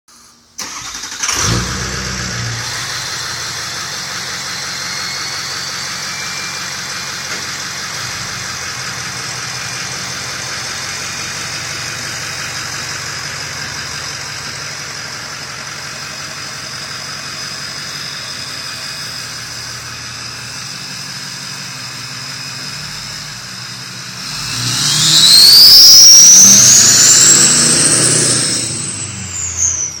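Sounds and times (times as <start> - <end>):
diesel truck engine: 0.5 - 30.0
exhaust rumble: 1.3 - 30.0
turbo whistle: 2.5 - 10.5, 17.0 - 30.0.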